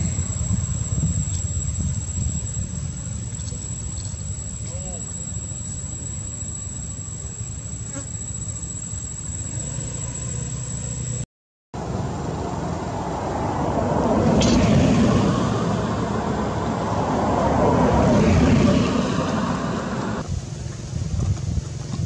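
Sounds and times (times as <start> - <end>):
road vehicles passing: 0.0 - 5.2, 9.4 - 11.2, 11.8 - 21.9
high insect buzz: 0.0 - 11.2.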